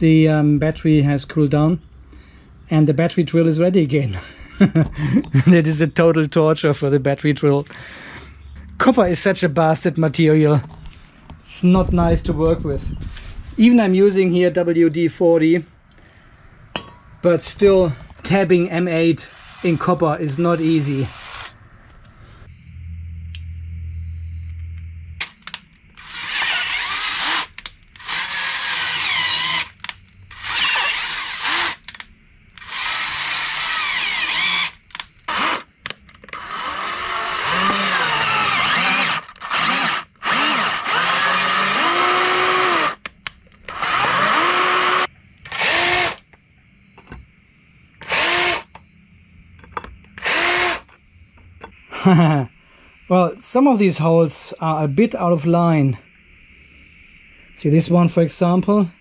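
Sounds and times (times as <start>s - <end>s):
cordless drill drilling metal: 19.2s - 21.5s, 26.0s - 32.0s, 32.6s - 35.7s, 36.3s - 43.0s, 43.7s - 46.2s, 48.0s - 48.7s, 50.2s - 50.9s.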